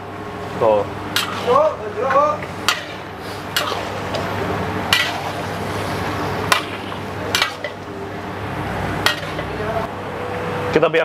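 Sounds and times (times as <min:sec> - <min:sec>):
steady low hum: 0:00.0 - 0:11.0
metal ladle clanking in wok: 0:01.2 - 0:01.6, 0:02.7 - 0:04.3, 0:04.9 - 0:05.6, 0:06.5 - 0:07.9, 0:09.0 - 0:09.6.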